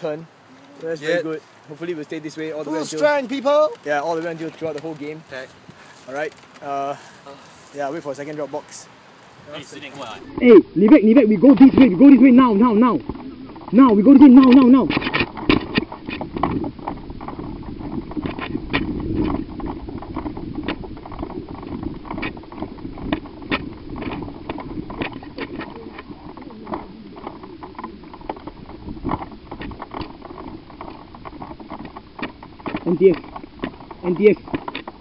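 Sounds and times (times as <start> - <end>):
footsteps: 0.0 - 10.6
camera handling rumble: 2.8 - 6.9, 14.4 - 35.0
carried gear knocking and rattling: 13.0 - 35.0.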